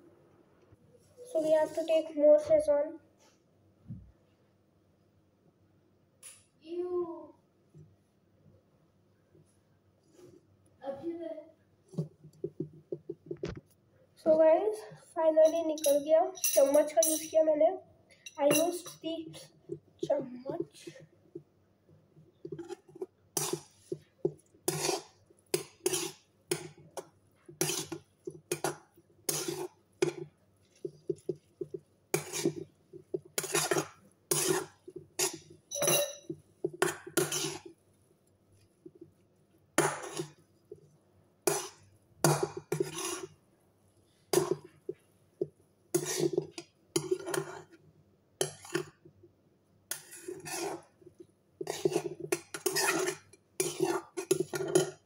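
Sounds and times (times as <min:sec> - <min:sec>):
metal spoon scraping a pan: 0:22.4 - 0:37.9, 0:39.8 - 0:43.4, 0:44.3 - 0:45.0, 0:45.9 - 0:47.8, 0:48.4 - 0:49.0, 0:49.9 - 0:55.0.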